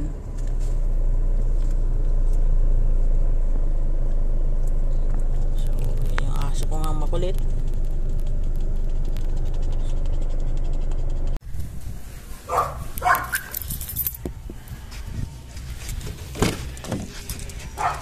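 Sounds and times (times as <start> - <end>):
steady low rumble: 0.0 - 18.0
dog barking: 12.5 - 13.6, 17.8 - 18.0.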